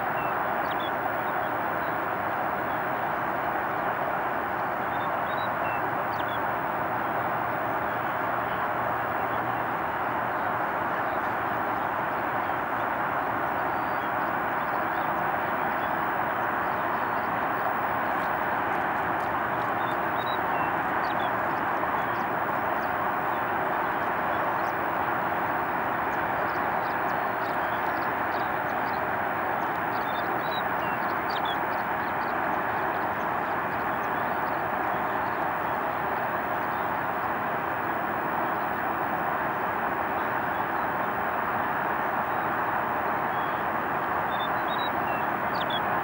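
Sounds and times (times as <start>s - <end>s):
outdoor background roar: 0.0s - 46.0s.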